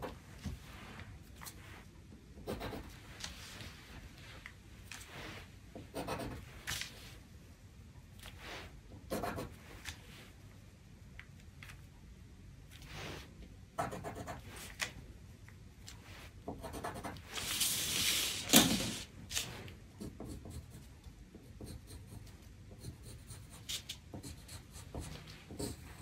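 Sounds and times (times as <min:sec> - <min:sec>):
pencil scratching on paper: 0:02.4 - 0:03.3, 0:05.8 - 0:06.6, 0:09.1 - 0:09.6, 0:13.8 - 0:14.8, 0:16.2 - 0:18.0, 0:20.0 - 0:26.0
paper rustling: 0:17.3 - 0:19.6.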